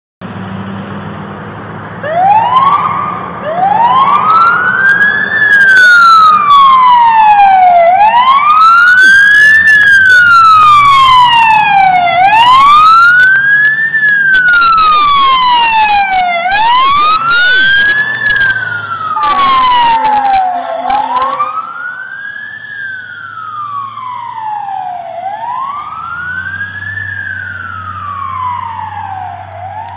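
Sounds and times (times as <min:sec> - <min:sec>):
truck engine rumble: 0:00.2 - 0:29.9
fire engine siren wailing: 0:02.0 - 0:29.9.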